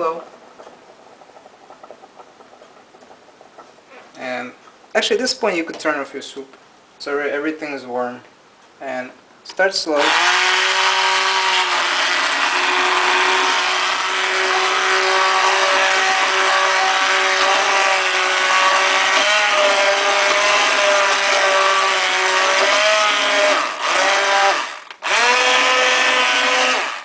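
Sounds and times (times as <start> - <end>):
immersion blender motor whine: 10.0 - 27.0.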